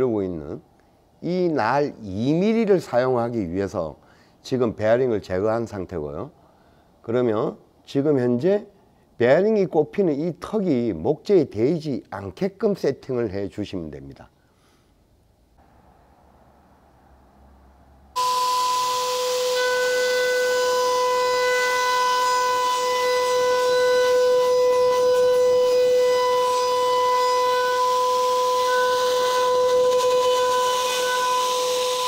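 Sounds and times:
router high whine cutting wood: 18.2s - 32.0s.

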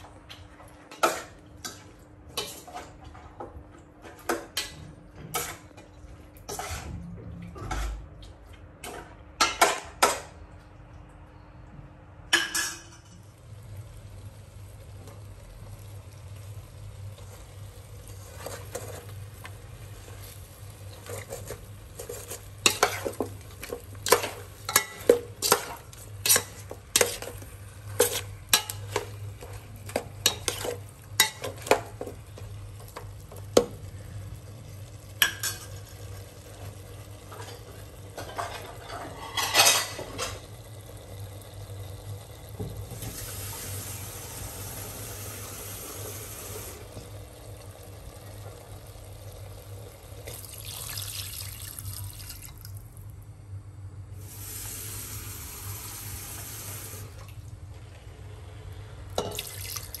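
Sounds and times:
metal ladle scraping a pot: 6.5s - 7.0s.

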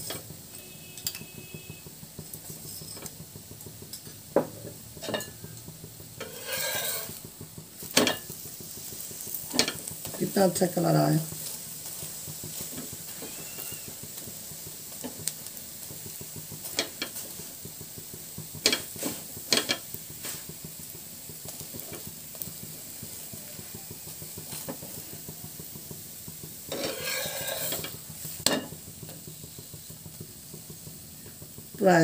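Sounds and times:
flatbread sizzling in oil: 0.0s - 32.0s
steel spatula scraping a pan: 6.2s - 7.3s, 26.7s - 28.7s.

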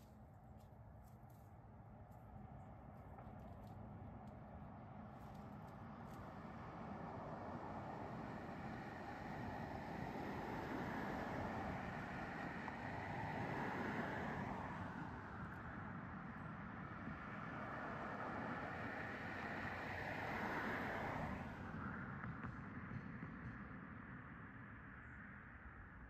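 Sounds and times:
road traffic rushing: 5.8s - 22.8s.

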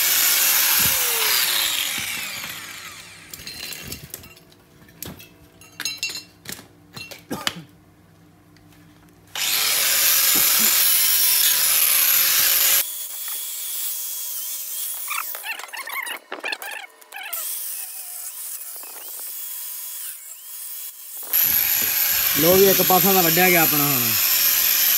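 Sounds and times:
angle grinder cutting metal: 0.0s - 4.0s, 9.4s - 15.8s, 17.3s - 24.9s
grinder running: 0.0s - 4.1s, 9.4s - 15.7s, 17.4s - 24.9s.

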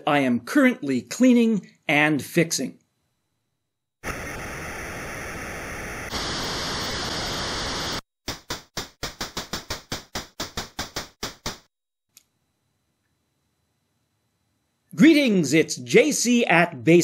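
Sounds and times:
synthesized electronic hiss: 4.0s - 10.1s.

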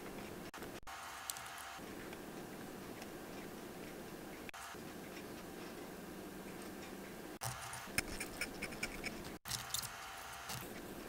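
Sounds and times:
small tool clicks and scrapes: 7.4s - 10.7s.

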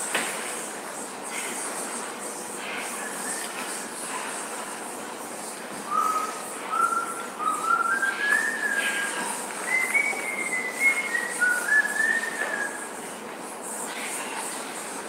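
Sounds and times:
person whistling a slow tune: 5.9s - 12.8s.

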